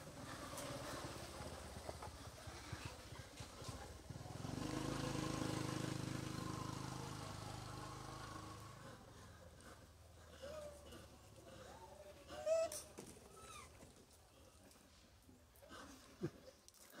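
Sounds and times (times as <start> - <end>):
vehicle engine passing by: 0.0 - 12.9.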